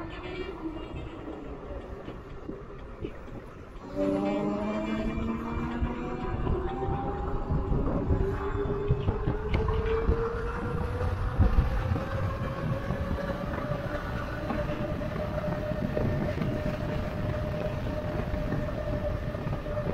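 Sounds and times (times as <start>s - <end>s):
wind buffeting microphone: 0.0s - 19.9s.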